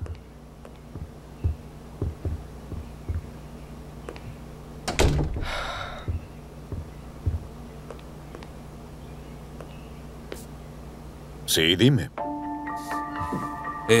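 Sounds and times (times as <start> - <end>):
footsteps on wooden floor: 0.0 - 3.3, 5.3 - 8.5, 13.2 - 13.6
loud thud: 4.9 - 5.8.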